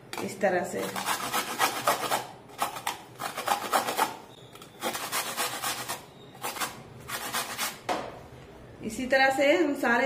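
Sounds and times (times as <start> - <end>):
grater rasping: 0.8 - 7.8.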